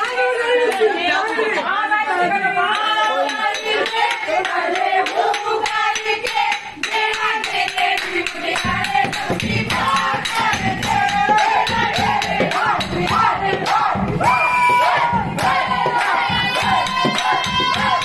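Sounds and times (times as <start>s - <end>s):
lively dance music with singing: 0.0s - 18.0s
deep drum beat: 8.4s - 18.0s.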